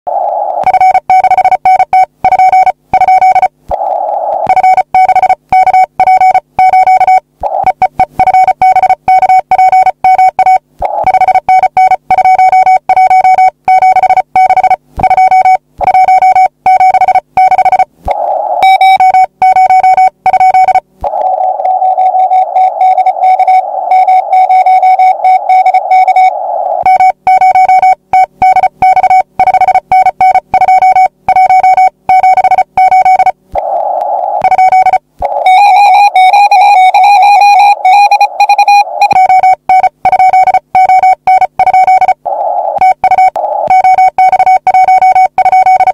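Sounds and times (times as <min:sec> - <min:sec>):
morse code tone: 0:18.6 - 0:33.4, 0:34.0 - 0:45.9.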